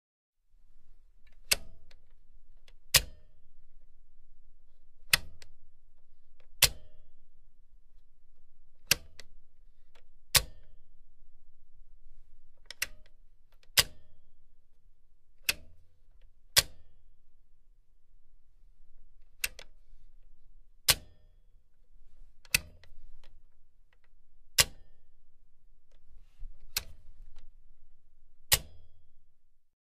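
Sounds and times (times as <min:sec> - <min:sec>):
low steady hum: 0:00.5 - 0:29.7
machine switch clicking: 0:02.9 - 0:03.3, 0:06.6 - 0:07.0, 0:10.4 - 0:10.7, 0:13.7 - 0:14.0, 0:16.6 - 0:16.9, 0:19.4 - 0:19.7, 0:20.9 - 0:21.2, 0:24.6 - 0:24.9, 0:26.6 - 0:27.5, 0:28.5 - 0:28.9.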